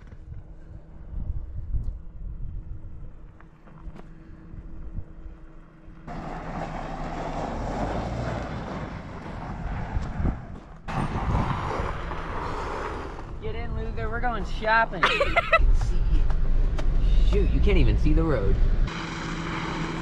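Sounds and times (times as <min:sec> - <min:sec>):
wind rumble on microphone: 0:00.0 - 0:05.5, 0:09.3 - 0:14.5
car driving on loose dirt: 0:01.9 - 0:20.0
tyres crunching: 0:06.0 - 0:20.0.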